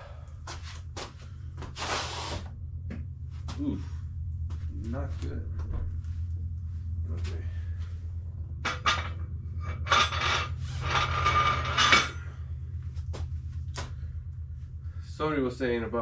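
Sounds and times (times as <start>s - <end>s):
weight plates clanking: 8.6s - 12.3s
ringing metal scrape: 8.6s - 12.5s.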